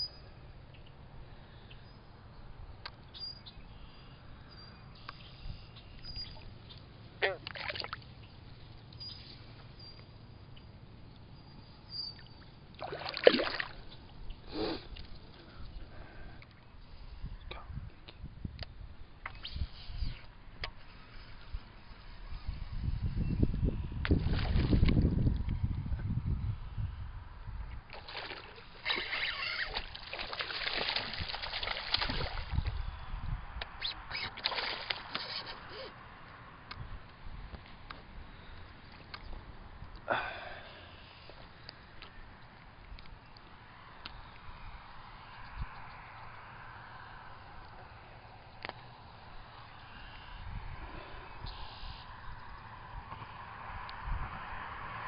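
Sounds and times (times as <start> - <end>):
water sloshing and splashing: 7.3 - 8.2, 12.8 - 14.1, 24.2 - 25.1, 27.9 - 32.7, 34.3 - 35.6.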